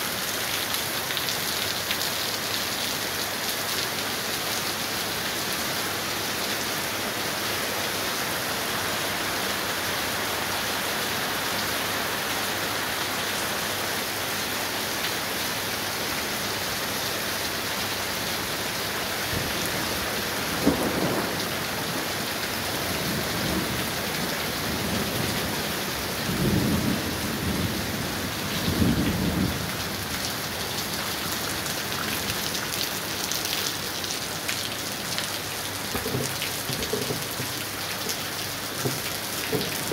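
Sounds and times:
heavy rain pouring: 0:00.0 - 0:39.9
thunder rumbling: 0:20.6 - 0:21.6.

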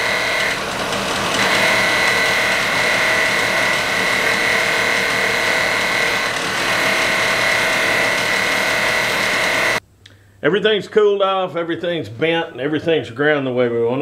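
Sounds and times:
grinder grinding steel bar: 0:00.0 - 0:09.8.

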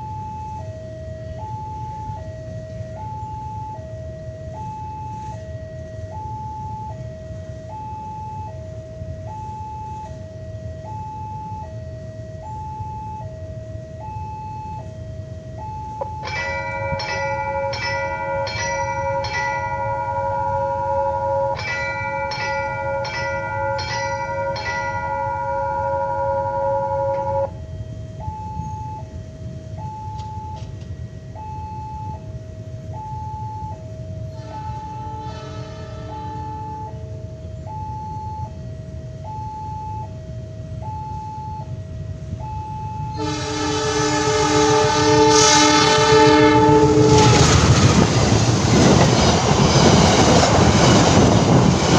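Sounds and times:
two-tone crossing alarm: 0:00.0 - 0:51.9
bell ringing: 0:16.0 - 0:27.5.

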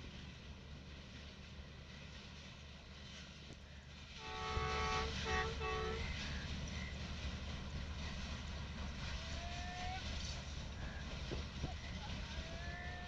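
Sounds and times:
low rumble of train: 0:00.0 - 0:13.0
distant train horn blasts: 0:04.2 - 0:06.4.

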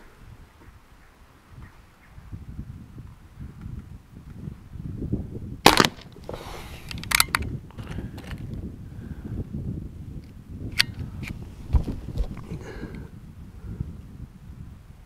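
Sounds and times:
wind rumble on microphone: 0:00.0 - 0:15.0
pellet pistol shot: 0:05.6 - 0:06.1.

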